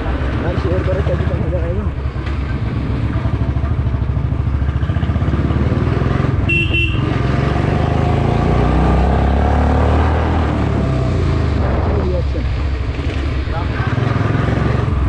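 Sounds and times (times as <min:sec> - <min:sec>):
motorcycle engine running: 0:00.0 - 0:08.1
vehicle horn beep: 0:06.4 - 0:07.2.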